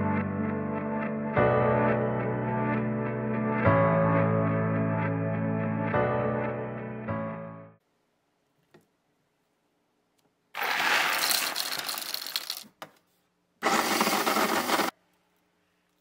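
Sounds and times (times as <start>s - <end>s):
electric coffee grinder grinding: 10.6s - 12.6s, 13.6s - 14.9s.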